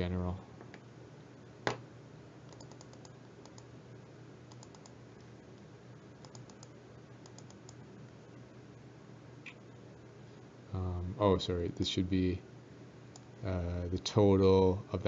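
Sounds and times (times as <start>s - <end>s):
keyboard typing clicks: 2.5s - 3.7s, 4.5s - 5.0s, 6.2s - 7.8s.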